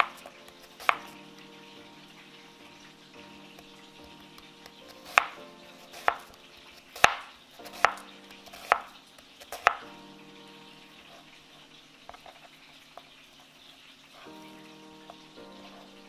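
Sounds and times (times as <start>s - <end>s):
knife chopping onto cutting board: 7.0s - 8.9s.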